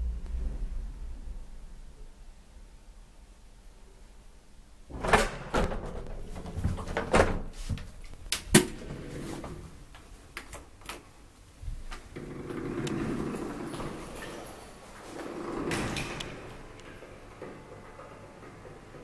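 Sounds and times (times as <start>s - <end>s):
elevator doors clattering open: 4.9s - 7.7s, 8.4s - 9.9s, 12.1s - 19.0s.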